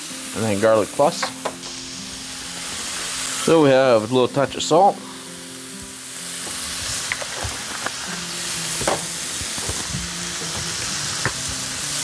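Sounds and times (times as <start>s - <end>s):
meat sizzling in oil: 0.0s - 12.0s.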